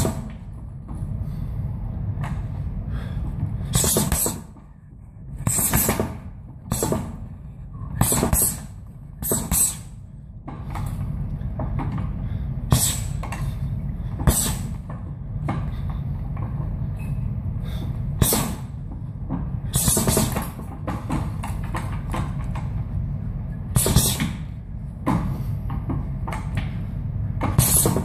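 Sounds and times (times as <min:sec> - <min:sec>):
gloved punches on heavy bag: 0:03.7 - 0:04.6, 0:05.4 - 0:07.2, 0:08.0 - 0:09.9, 0:12.7 - 0:13.3, 0:14.2 - 0:14.8, 0:18.2 - 0:18.8, 0:19.7 - 0:21.2, 0:23.8 - 0:24.5, 0:27.4 - 0:28.0
sharp exhales: 0:07.8 - 0:10.0, 0:12.2 - 0:14.8.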